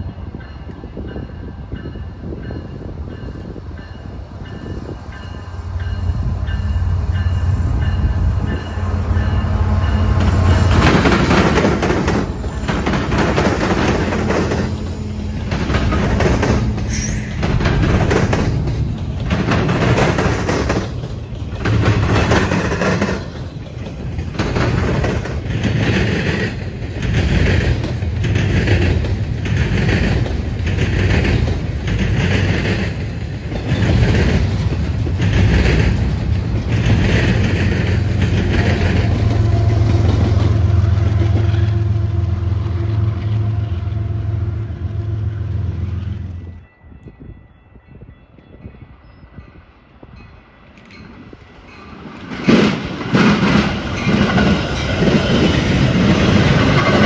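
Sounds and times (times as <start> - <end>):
diesel locomotive engine drone: 0.0 - 57.0
freight cars rumbling: 0.9 - 46.5, 51.0 - 57.0
wheels clacking over rails: 10.1 - 40.6, 51.8 - 57.0.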